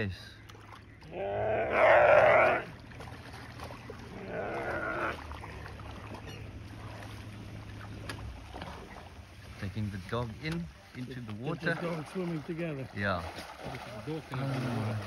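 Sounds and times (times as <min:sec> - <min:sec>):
antelope bleating in distress: 0:01.1 - 0:02.7, 0:04.1 - 0:05.2.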